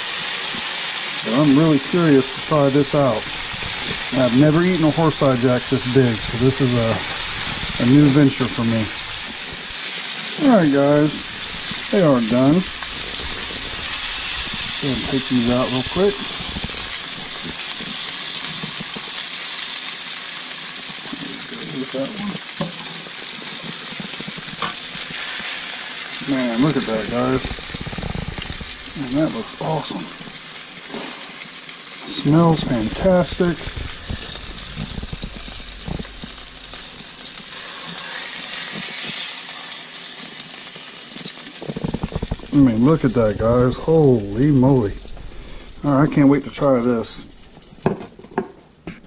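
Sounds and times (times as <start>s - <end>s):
fish steaks sizzling in oil: 0.0s - 49.0s.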